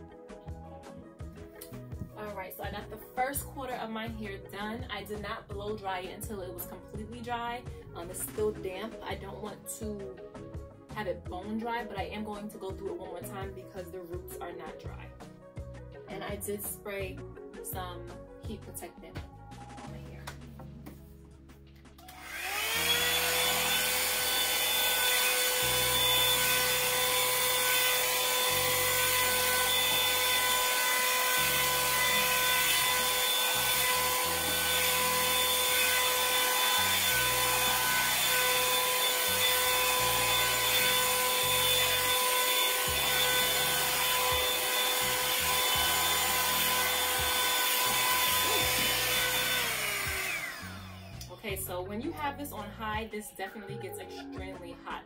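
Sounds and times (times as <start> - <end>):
faint background music with beat: 0.0 - 55.0
hair dryer brush whining: 22.0 - 51.4.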